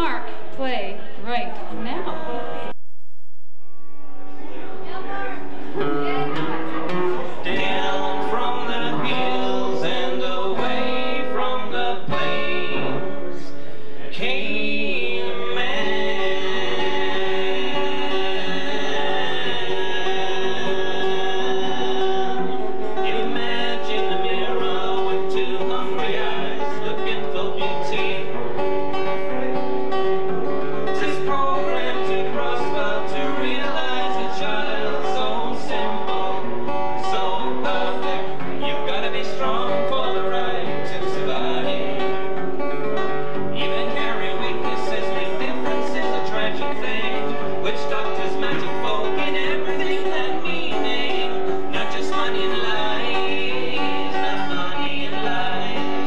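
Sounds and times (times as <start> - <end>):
acoustic guitar: 3.6 - 56.0
two men singing: 7.0 - 29.6, 30.8 - 42.3, 43.4 - 56.0.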